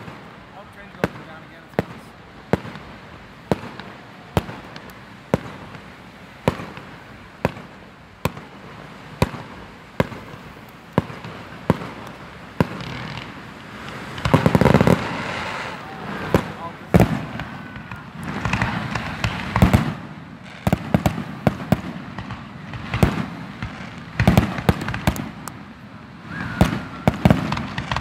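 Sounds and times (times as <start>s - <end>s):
firework crackle: 0.0s - 28.0s
firework shells bursting with bangs: 0.0s - 28.0s.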